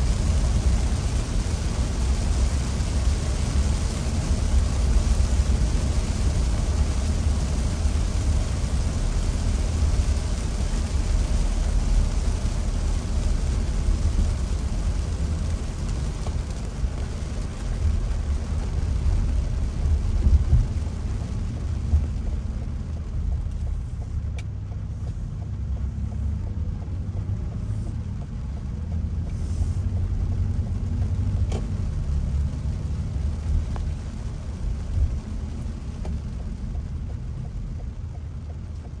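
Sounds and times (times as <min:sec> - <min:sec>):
car cabin rumble on wet road: 0:00.0 - 0:39.0
faint ticks: 0:21.1 - 0:31.8.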